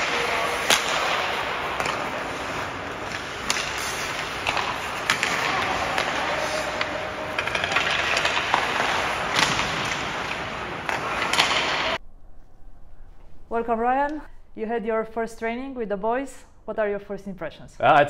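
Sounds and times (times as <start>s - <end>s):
skate blades scraping ice: 0.0s - 12.0s
sticks striking pucks: 0.0s - 12.0s.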